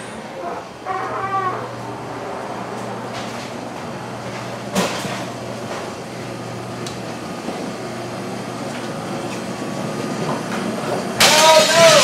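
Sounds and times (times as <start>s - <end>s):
refrigeration equipment humming: 0.0s - 12.0s
sharp clatter: 11.2s - 12.0s.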